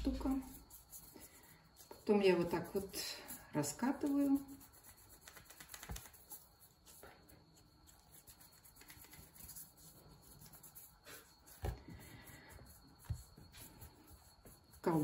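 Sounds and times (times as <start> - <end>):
hands rolling dough on wood: 0.0 - 15.0.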